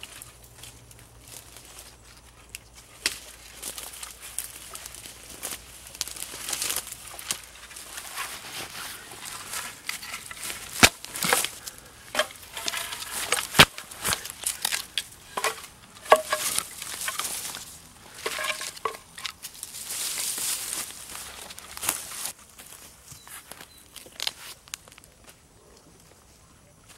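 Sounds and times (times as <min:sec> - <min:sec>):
sticks and dry grass rustling: 0:00.0 - 0:26.9
wooden branches snapping: 0:02.5 - 0:22.3.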